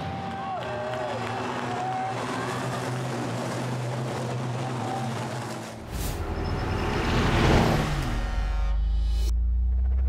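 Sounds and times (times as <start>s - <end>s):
diesel truck engines running: 0.1s - 8.6s
deep rumble: 1.9s - 10.0s.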